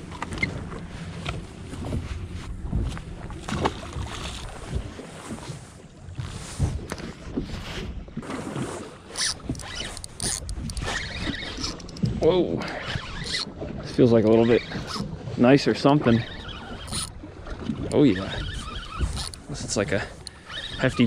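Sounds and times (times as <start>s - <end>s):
water slapping boat hull: 0.0s - 21.0s
wind buffeting microphone: 9.4s - 21.0s.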